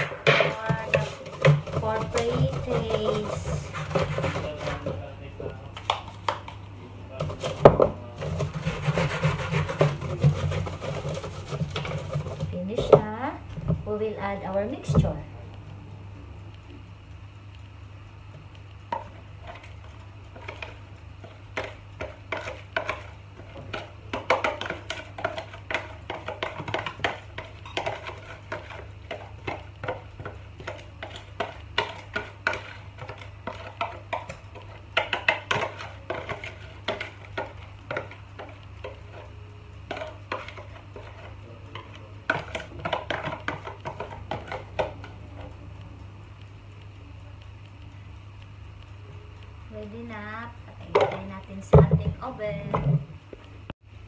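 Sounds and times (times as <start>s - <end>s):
whisk scraping and tapping: 0.0s - 5.1s, 7.2s - 13.2s, 18.8s - 45.6s
steady low hum: 0.0s - 54.0s.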